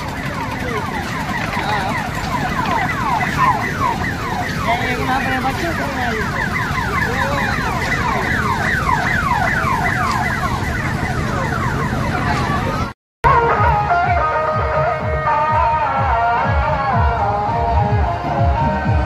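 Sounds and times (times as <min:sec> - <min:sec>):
electronic siren-like warble: 0:00.0 - 0:15.2
fairground crowd noise: 0:00.0 - 0:19.0
music with held notes: 0:13.2 - 0:19.0.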